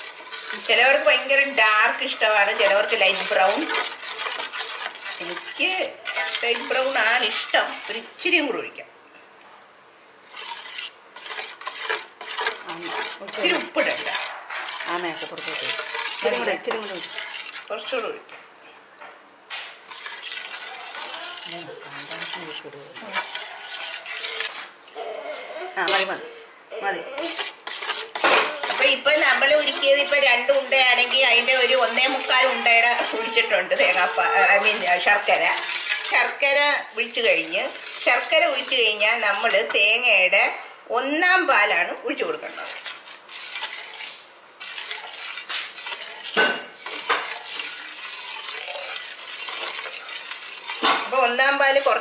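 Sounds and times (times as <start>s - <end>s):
metal spoon scraping steel pot: 0.0s - 8.7s, 10.3s - 18.2s, 19.5s - 24.7s, 25.8s - 26.1s, 27.2s - 52.0s.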